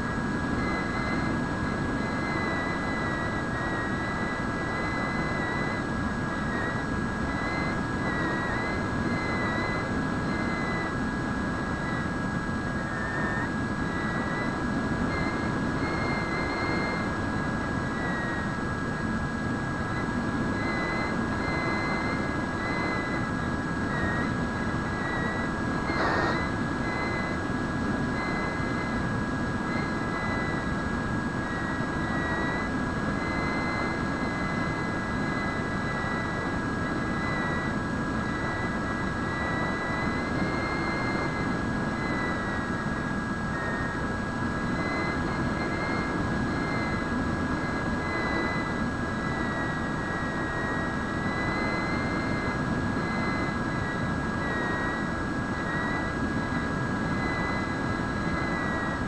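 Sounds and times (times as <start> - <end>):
electric motor and propeller whining: 25.8 - 26.7.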